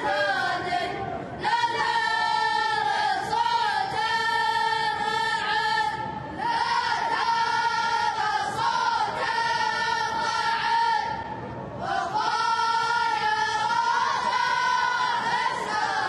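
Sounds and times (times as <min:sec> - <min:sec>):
voices singing together: 0:00.0 - 0:16.0.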